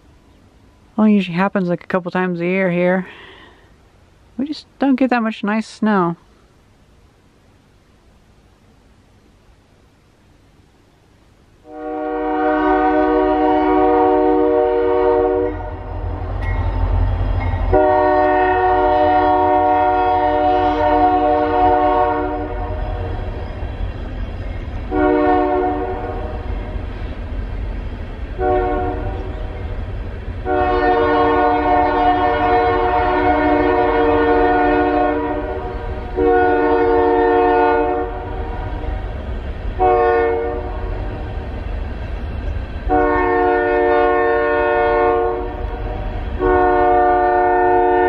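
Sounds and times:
low rumble of passing train: 0.0 - 48.0
multi-tone train horn blasts: 11.6 - 16.1, 17.4 - 23.2, 24.9 - 26.6, 28.4 - 29.6, 30.4 - 39.0, 39.8 - 41.3, 42.9 - 48.0.

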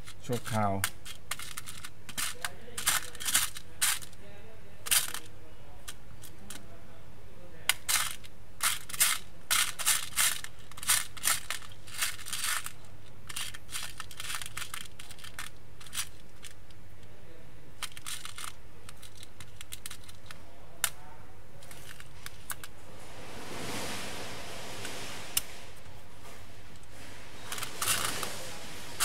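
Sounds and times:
small plastic parts clattering: 0.0 - 4.2, 4.8 - 6.6, 7.6 - 17.0, 17.8 - 21.0, 21.6 - 22.8, 26.7 - 29.0
steady low hum: 0.0 - 29.0.

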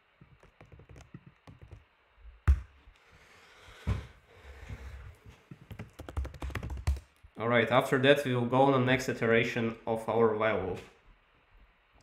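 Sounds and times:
computer keyboard typing: 0.4 - 1.8, 5.7 - 7.2.

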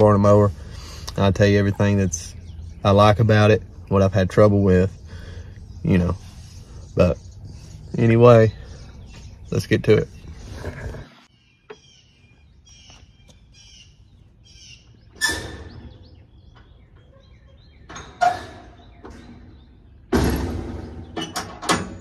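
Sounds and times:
birds chirping: 0.0 - 22.0
thumps: 20.1 - 22.0.

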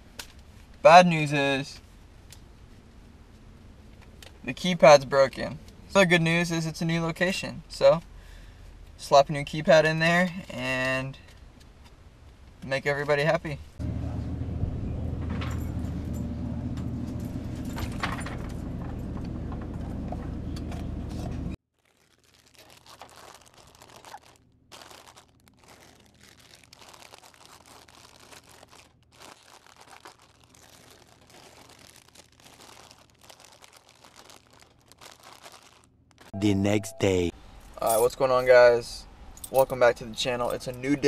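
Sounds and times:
chip bags crinkling: 21.7 - 36.3
snack packets clicking into coils: 21.8 - 36.3.

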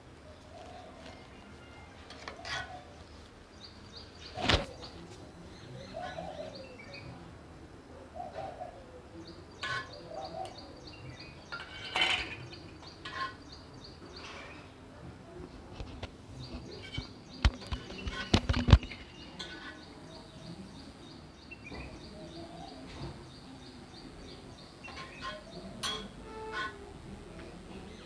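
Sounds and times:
small birds chirping: 0.2 - 7.2, 8.2 - 14.8, 15.8 - 28.0
spoons clinking against steel bowls: 24.9 - 26.7.

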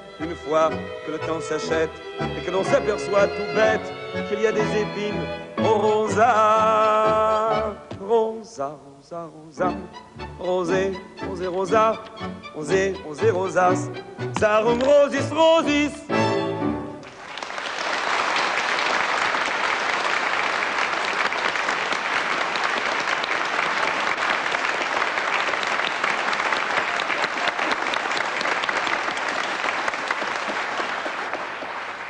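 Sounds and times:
studio audience applauding: 17.0 - 32.0.

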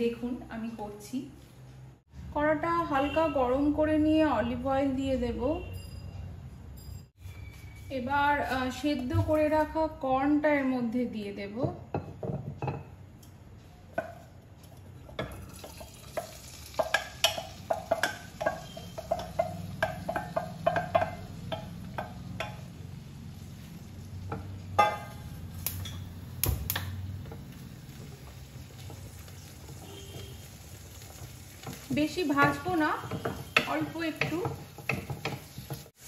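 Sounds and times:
metallic clinks: 5.7 - 7.2
corn sizzling in oil: 15.0 - 36.0
wooden spoon scraping pot: 31.1 - 36.0.

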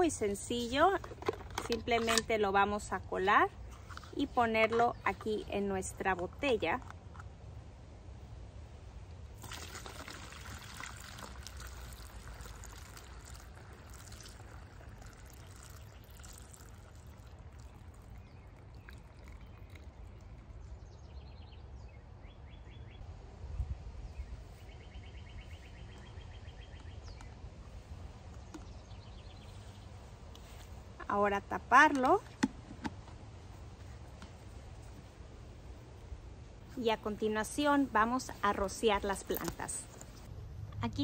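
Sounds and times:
liquid pouring through strainer: 9.4 - 20.5.

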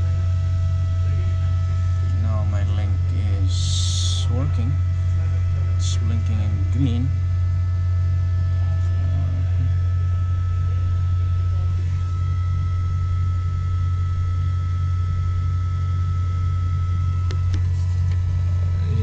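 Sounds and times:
high-pitched whines: 0.0 - 19.0
machinery droning: 0.0 - 19.0.

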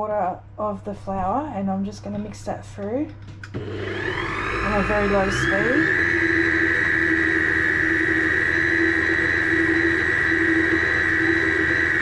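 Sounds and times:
stand mixer motor whining: 3.5 - 12.0.

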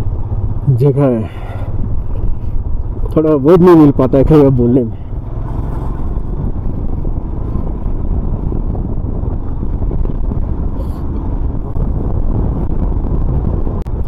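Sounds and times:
motorcycle engine: 0.0 - 14.0
wind on microphone: 1.3 - 3.2, 4.9 - 14.0.

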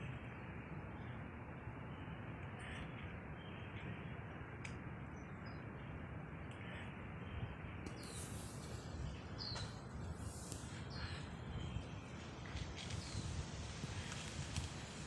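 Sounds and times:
outdoor background noise: 0.0 - 15.0
bird chirps: 6.5 - 13.4.

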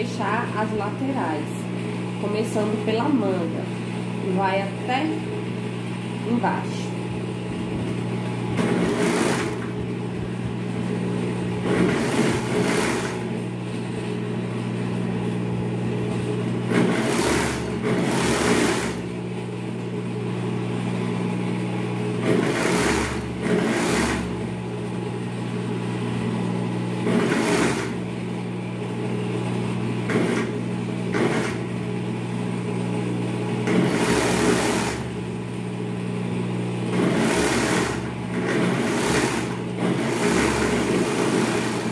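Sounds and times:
sewing machine motor hum: 0.0 - 41.9
overlock sewing machine stitching: 8.5 - 10.0, 11.6 - 13.5, 16.1 - 19.2, 22.1 - 24.6, 26.9 - 28.1, 30.0 - 31.8, 33.6 - 35.3, 36.8 - 41.9.

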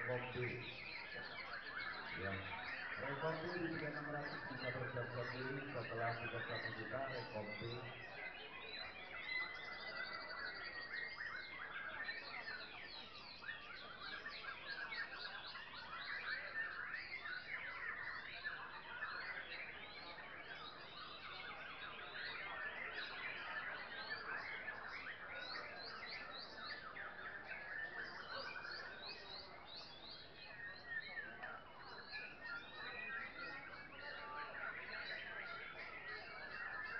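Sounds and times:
chorus of birds singing: 0.0 - 36.9.

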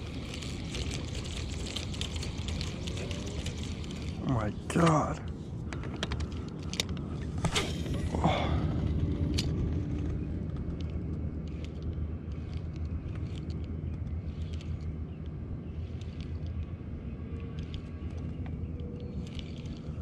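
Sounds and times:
wind rumble: 0.0 - 20.0
fishing reel clicks: 10.8 - 20.0.

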